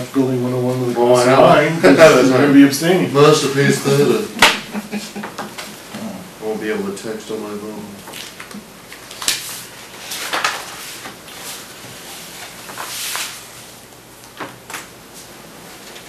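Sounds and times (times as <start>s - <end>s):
papers rustling: 8.0s - 16.0s.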